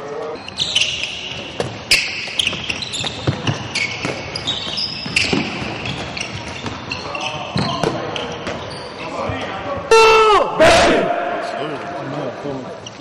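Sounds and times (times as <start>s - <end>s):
sneakers squeaking on floor: 0.0s - 10.0s, 12.7s - 13.0s
ball bouncing: 1.3s - 6.8s.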